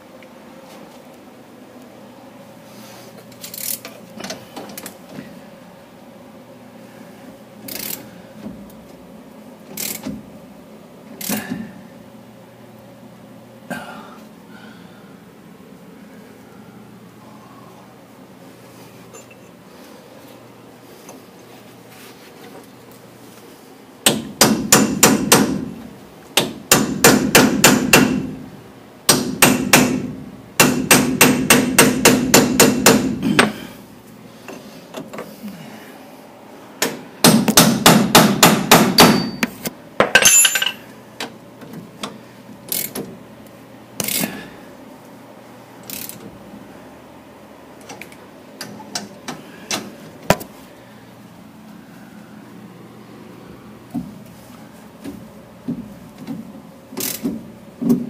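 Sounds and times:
hammer striking metal: 37.2 - 40.8.

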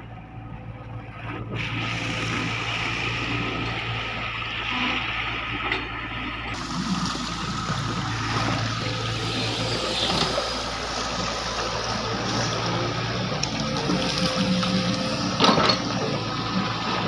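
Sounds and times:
excavator diesel engine running: 0.0 - 17.0
river water flowing: 1.6 - 17.0.

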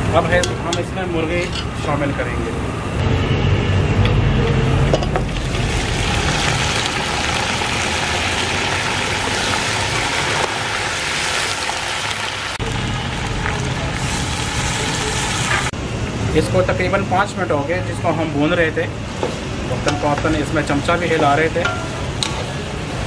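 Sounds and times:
low rumble: 2.6 - 8.4
chicken sizzling in hot oil: 5.3 - 15.7.

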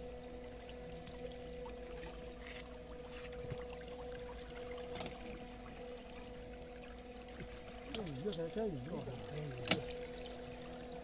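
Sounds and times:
steady hum: 0.0 - 11.0
water trickling and dripping: 0.0 - 11.0.

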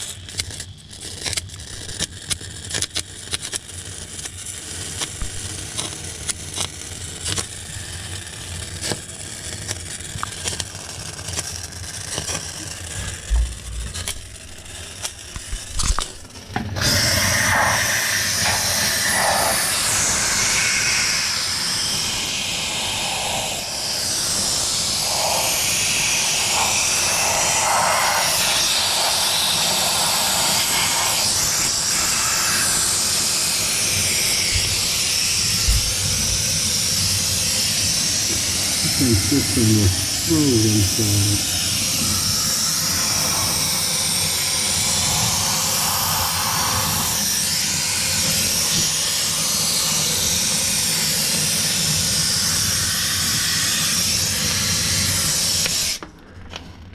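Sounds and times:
steam cleaner hissing: 4.1 - 56.0.

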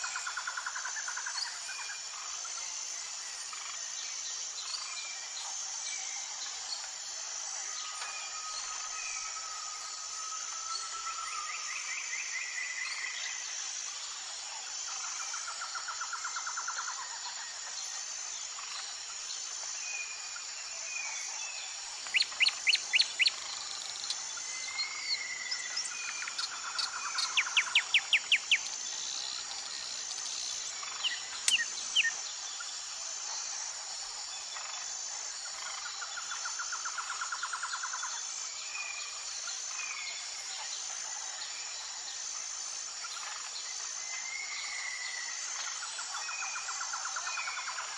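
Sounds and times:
steady high-pitched hiss: 0.0 - 47.9
nightingale singing whistled notes: 22.1 - 23.4, 24.6 - 28.7, 30.8 - 32.2.

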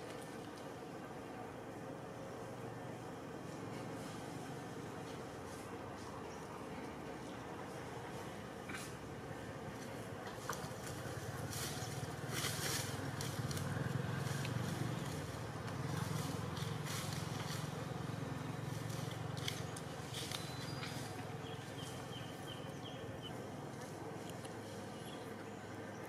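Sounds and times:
passing motor vehicle rumble: 0.0 - 26.0.

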